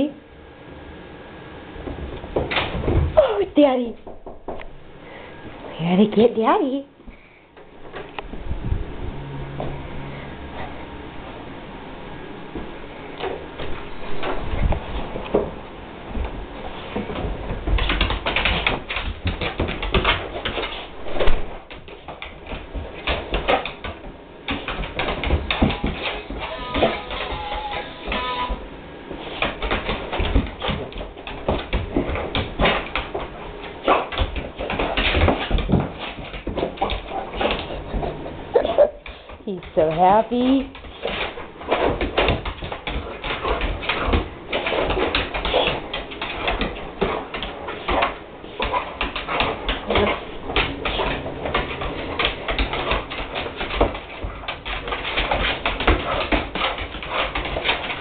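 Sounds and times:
dog claws clicking on wooden floor: 16.2s - 28.5s, 29.2s - 38.2s, 39.0s - 58.0s
dog whimpering: 26.4s - 28.6s, 38.5s - 39.0s.

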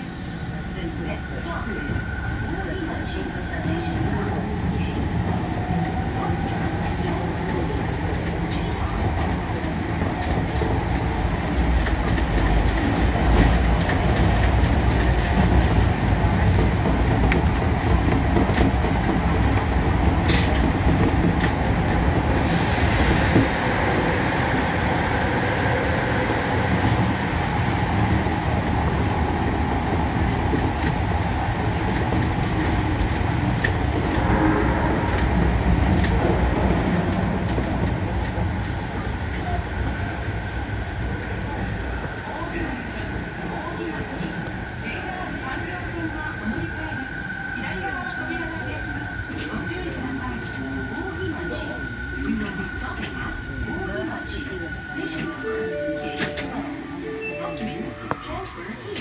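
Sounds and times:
subway train wheels rumbling on rail: 0.0s - 59.0s
clicks of train wheels: 16.5s - 22.4s.

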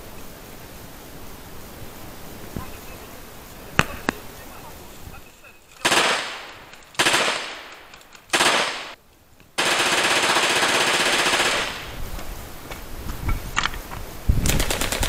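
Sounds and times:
airsoft gun firing bursts: 5.8s - 9.0s, 9.6s - 12.0s, 14.5s - 15.0s.

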